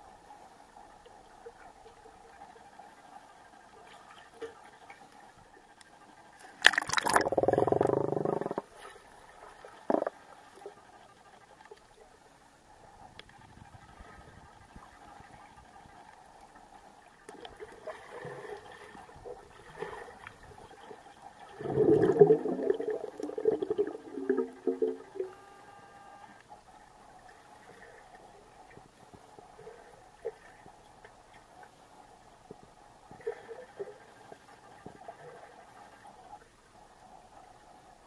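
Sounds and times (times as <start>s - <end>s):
underwater bubbling and gurgling: 0.0s - 38.0s
underwater hum: 0.0s - 38.0s
small underwater clicks: 3.9s - 8.7s, 9.6s - 10.8s.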